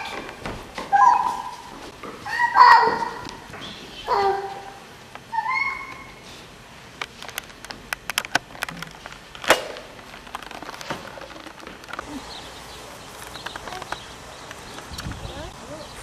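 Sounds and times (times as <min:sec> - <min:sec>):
irregular sharp clicks and knocks: 0:07.0 - 0:12.0.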